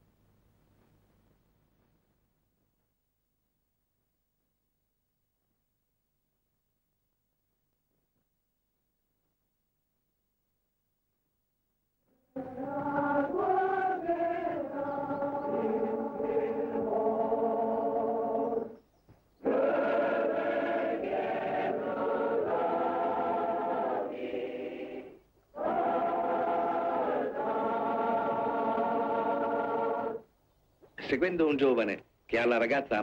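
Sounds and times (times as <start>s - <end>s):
choir singing sustained chords: 12.1s - 18.8s, 19.4s - 30.3s.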